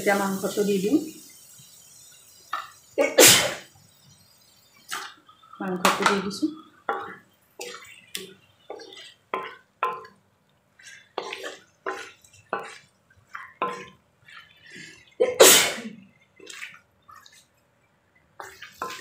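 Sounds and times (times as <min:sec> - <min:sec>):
metal spatula scraping a pan: 0:06.9 - 0:10.2, 0:10.8 - 0:15.8, 0:18.4 - 0:19.0.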